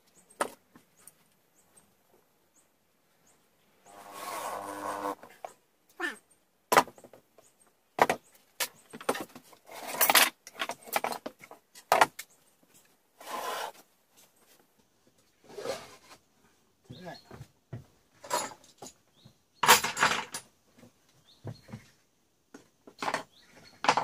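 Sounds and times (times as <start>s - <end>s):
short scrape: 3.9s - 5.3s, 13.2s - 13.9s, 15.4s - 16.2s
wooden knocks and clatters: 6.7s - 12.8s, 17.3s - 24.0s.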